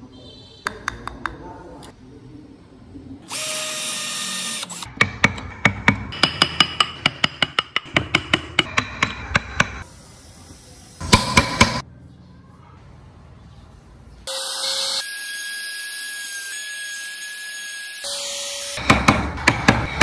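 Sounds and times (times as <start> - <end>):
power tool running: 3.3 - 4.9
chisel tapping into wood: 5.0 - 9.8.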